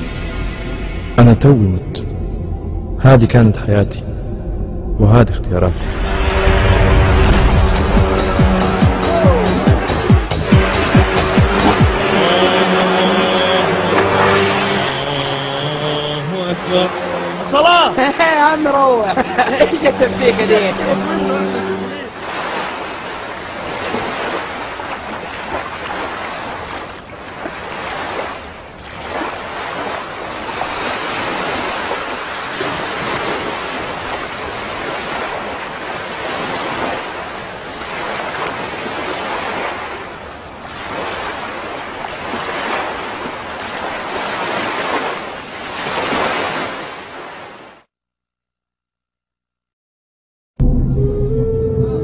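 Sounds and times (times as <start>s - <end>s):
waves breaking on a beach: 7.4s - 47.9s.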